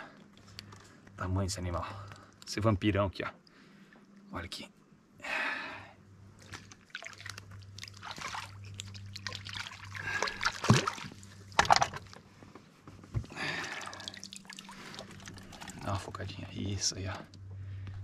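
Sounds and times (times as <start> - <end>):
river water sloshing and splashing: 6.3 - 12.2, 13.4 - 16.2
sharp splashes: 6.4 - 11.9, 13.4 - 15.9.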